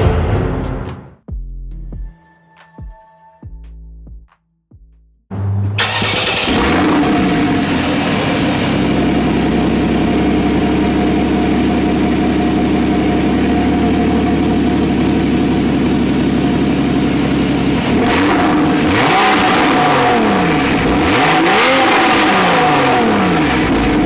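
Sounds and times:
car engine revving and idling: 5.3 - 24.0.

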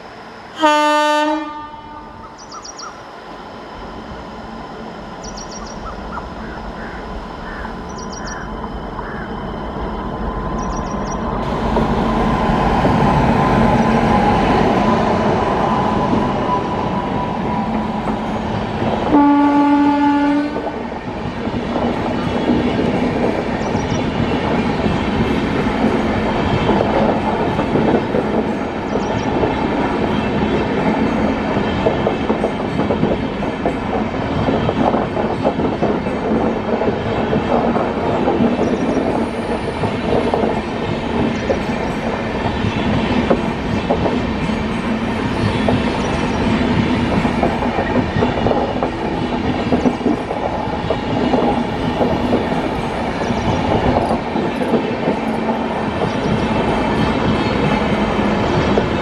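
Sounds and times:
train wheels rumbling on rails: 0.0 - 59.0
train horn blast: 0.5 - 2.4, 19.1 - 20.8.

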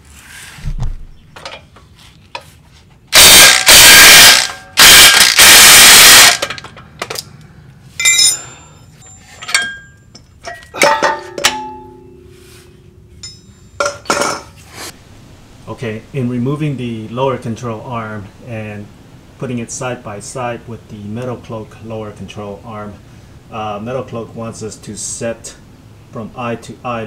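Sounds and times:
impact wrench bursts: 3.1 - 6.8
metal piece ringing: 8.0 - 14.5.

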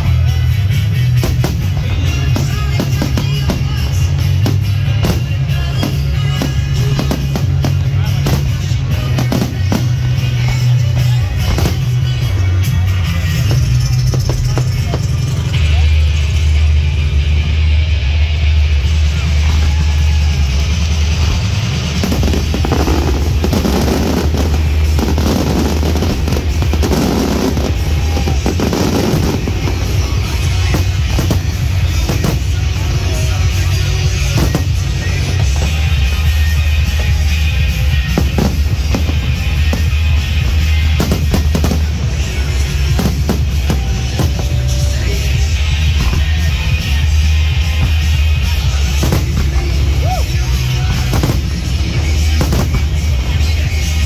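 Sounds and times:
fireworks booming and crackling: 0.0 - 17.4, 18.1 - 54.0
loud music with heavy bass: 0.0 - 54.0
firework shells bursting: 21.3 - 36.3.

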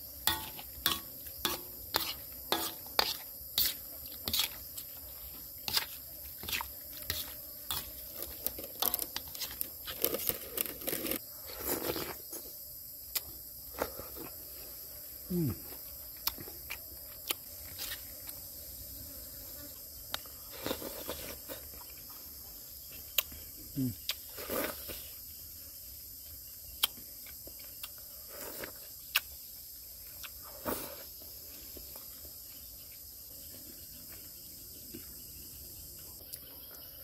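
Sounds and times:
high insect drone: 0.0 - 37.0
spatula scraping a metal bowl: 0.3 - 4.6.

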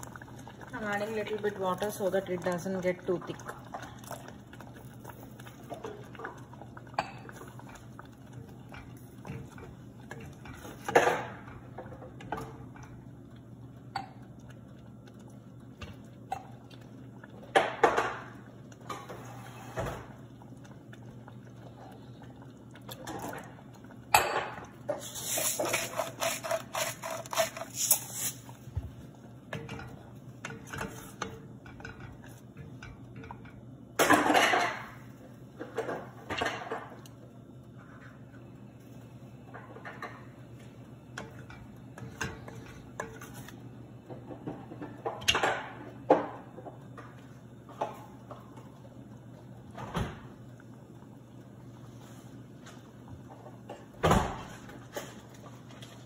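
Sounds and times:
pots and utensils clattering: 5.6 - 13.0, 17.4 - 20.2, 22.9 - 28.5, 29.5 - 35.0, 35.6 - 37.1, 39.5 - 40.4, 41.2 - 48.6
wooden spoon scraping metal pot: 24.9 - 28.5.

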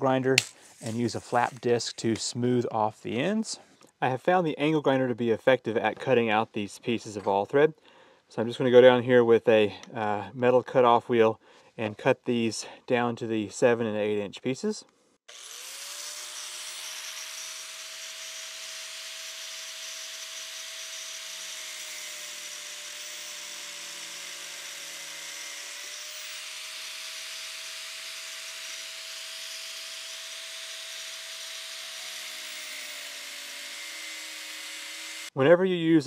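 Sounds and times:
angle grinder cutting steel: 15.3 - 35.4.

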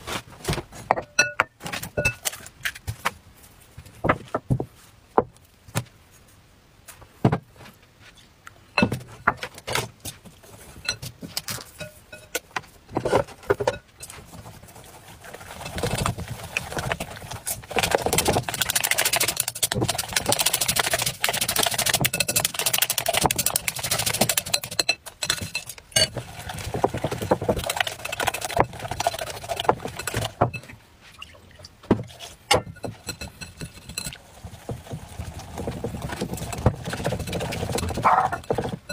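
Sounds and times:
utensil clinking against glass bowl: 1.0 - 2.2, 11.7 - 12.4, 21.7 - 26.2, 32.5 - 34.2
batter beaten in bowl: 13.6 - 30.7, 31.9 - 38.9.

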